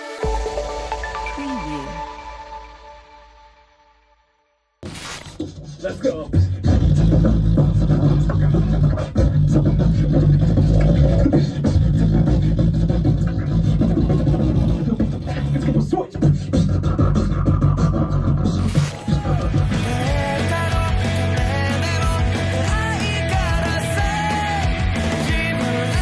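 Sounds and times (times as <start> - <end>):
band music: 0.0 - 2.6, 19.0 - 26.0
beatboxing into microphones: 5.4 - 26.0.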